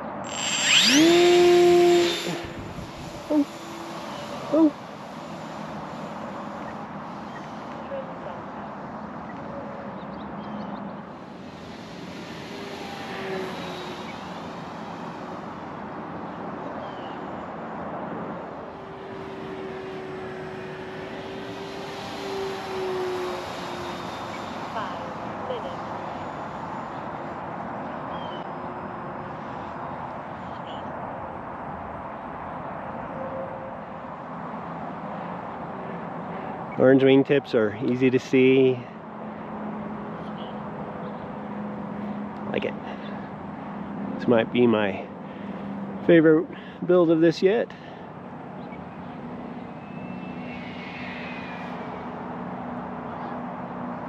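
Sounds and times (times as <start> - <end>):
faint electric motor whine: 0.0 - 9.9, 11.0 - 30.6
wind noise on microphone: 0.7 - 3.4.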